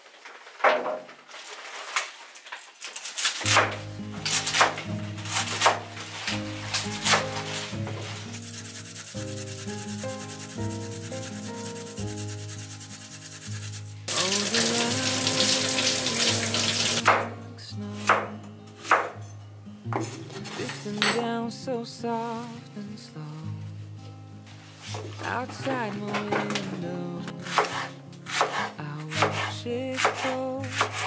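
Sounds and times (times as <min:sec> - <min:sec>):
knife chopping on wooden board: 0:03.5 - 0:05.8, 0:07.1 - 0:07.4, 0:16.9 - 0:17.3, 0:27.5 - 0:31.0
steady rubbing hiss: 0:06.9 - 0:15.3.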